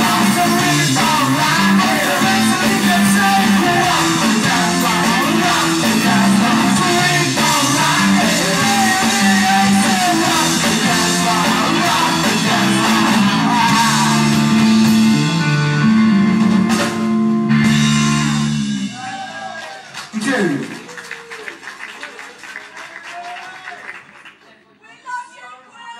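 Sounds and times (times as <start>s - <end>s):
lead singer: 0.0s - 15.6s
distorted electric guitars: 0.0s - 19.5s
bass guitar: 0.0s - 19.8s
drum kit: 0.0s - 19.9s.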